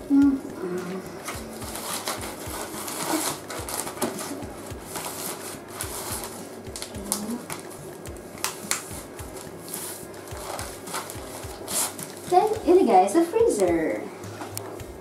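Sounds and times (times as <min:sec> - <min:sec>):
plastic bag crinkling: 0:01.2 - 0:07.8, 0:08.4 - 0:12.6.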